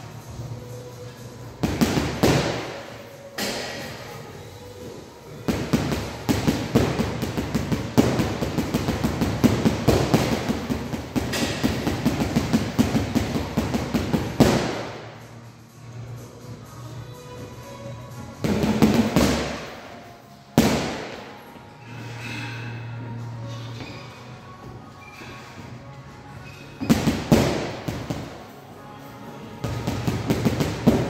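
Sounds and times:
gloves punching heavy bag: 0:01.6 - 0:02.7, 0:05.5 - 0:14.9, 0:26.8 - 0:28.3, 0:29.6 - 0:31.0.

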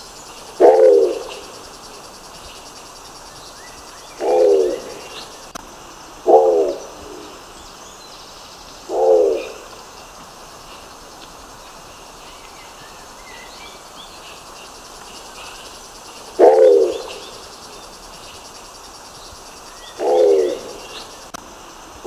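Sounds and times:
pigeon low calls: 0:00.5 - 0:01.5, 0:04.2 - 0:05.4, 0:08.9 - 0:09.7, 0:16.3 - 0:17.3, 0:19.9 - 0:21.0.

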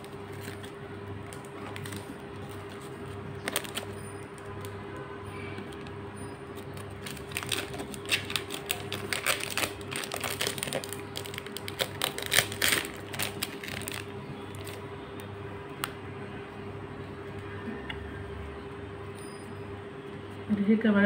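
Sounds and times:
plastic wrap crinkling: 0:00.0 - 0:04.9, 0:05.6 - 0:15.3
steady low hum: 0:00.0 - 0:21.0.

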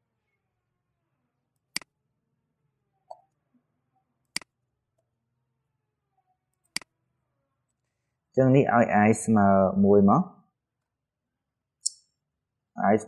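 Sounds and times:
computer mouse clicks: 0:01.7 - 0:01.9, 0:04.3 - 0:04.6, 0:06.6 - 0:06.9.

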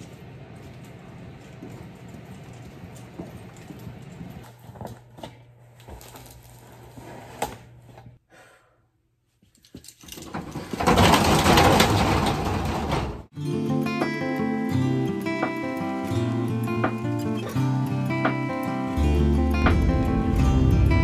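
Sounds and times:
metal roll-up door rattling: 0:10.1 - 0:13.3
steady low hum: 0:16.8 - 0:21.0.

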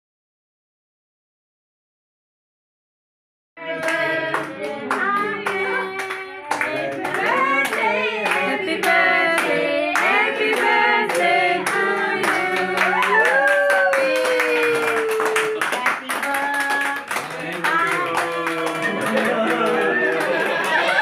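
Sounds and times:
group singing: 0:03.6 - 0:13.5, 0:17.1 - 0:21.0
people clapping in time: 0:03.7 - 0:21.0.

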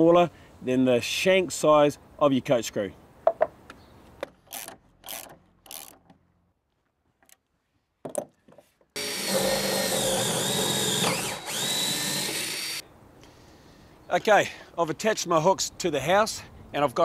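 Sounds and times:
cordless drill into wood: 0:04.5 - 0:06.0, 0:09.0 - 0:12.8.

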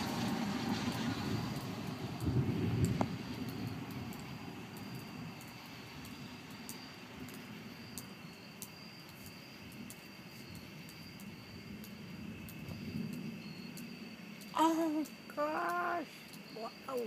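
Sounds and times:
distant thunder rumbling: 0:00.0 - 0:09.0, 0:09.6 - 0:17.0.

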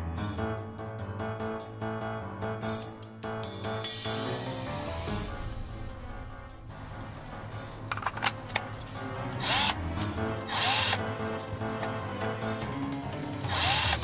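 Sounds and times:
cordless drill whirring: 0:09.4 - 0:09.8, 0:10.5 - 0:11.0, 0:13.4 - 0:14.0.

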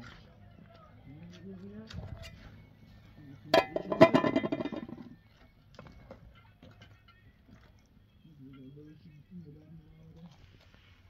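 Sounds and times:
metal cookware clanking: 0:03.5 - 0:05.1.

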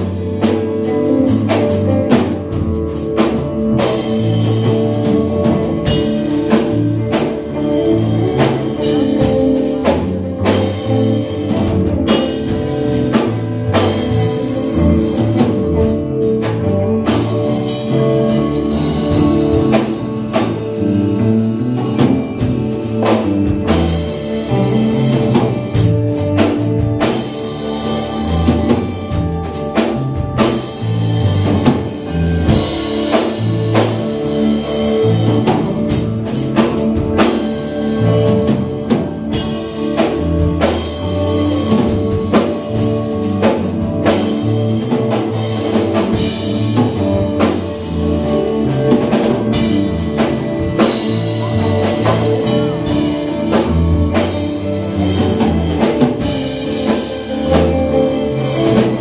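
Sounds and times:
drum kit beat: 0:00.0 - 0:59.0
electric guitars: 0:00.0 - 0:59.0
keyboard: 0:00.0 - 0:59.0.

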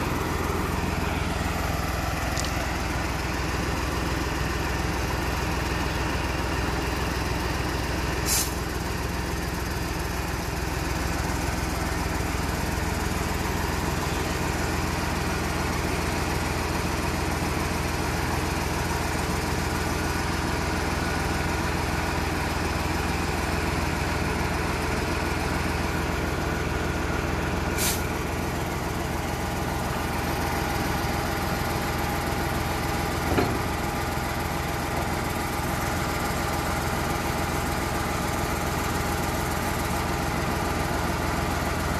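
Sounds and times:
diesel truck engine running: 0:00.0 - 0:41.9
brief high hisses: 0:08.2 - 0:08.6, 0:27.8 - 0:28.1.

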